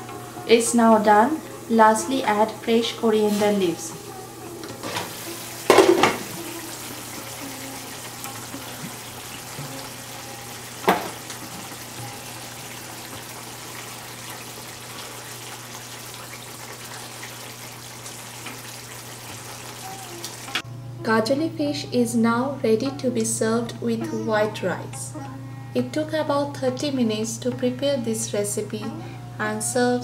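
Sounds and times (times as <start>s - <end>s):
curry bubbling in a pan: 5.7s - 20.6s.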